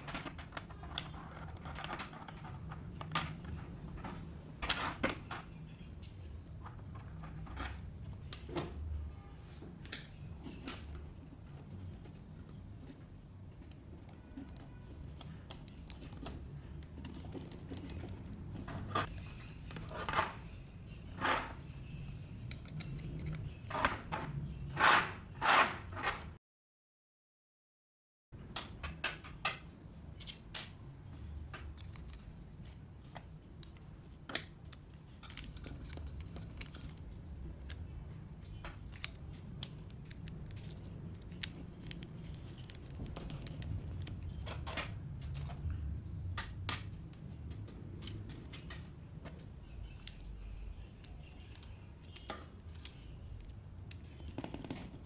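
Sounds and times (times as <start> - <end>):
small parts clicking and tapping: 31.4 - 50.3.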